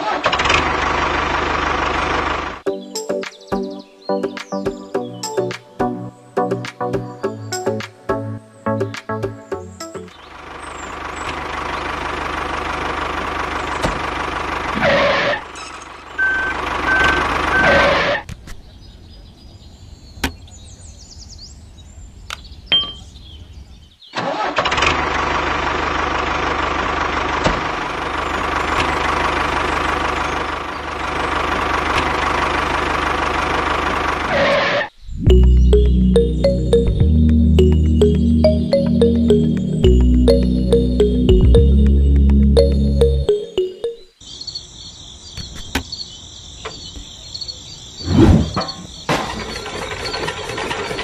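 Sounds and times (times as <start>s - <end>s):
model tractor engine running: 0.0s - 2.6s, 10.4s - 17.5s, 24.2s - 34.3s, 49.3s - 51.0s.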